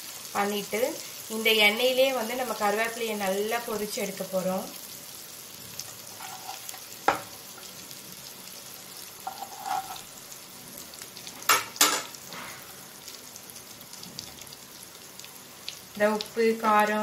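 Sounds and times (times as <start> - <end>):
oil sizzling in a pan: 0.0 - 17.0
metal spoon scraping a pan: 6.1 - 6.9, 9.2 - 10.1.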